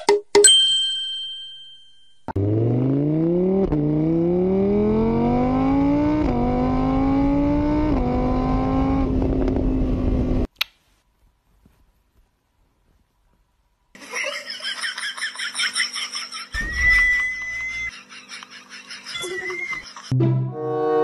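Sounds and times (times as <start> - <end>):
motorbike engine accelerating: 2.4 - 10.5.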